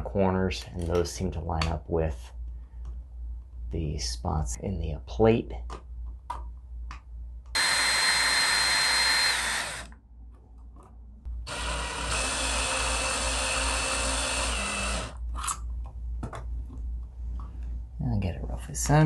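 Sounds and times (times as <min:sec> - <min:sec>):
cordless drill driving screws: 0:07.6 - 0:09.9, 0:11.5 - 0:15.2.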